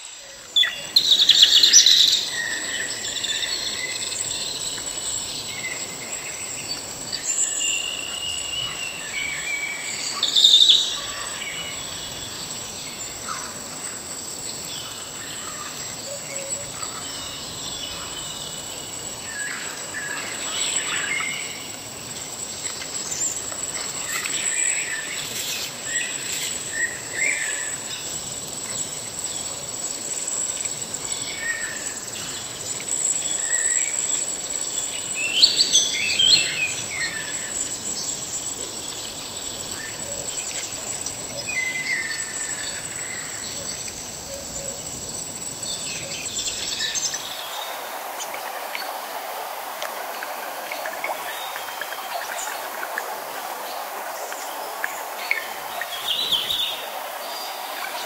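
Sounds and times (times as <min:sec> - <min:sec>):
insects droning: 0:00.0 - 0:58.0
falling water: 0:18.6 - 0:44.3, 0:44.9 - 0:58.0.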